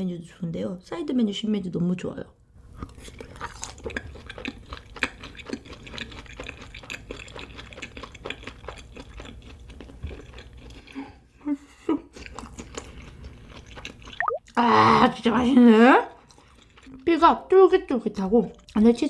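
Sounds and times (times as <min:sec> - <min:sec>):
chewing food: 0:02.7 - 0:14.6, 0:15.4 - 0:19.0
loud mouth sounds: 0:14.2 - 0:15.1.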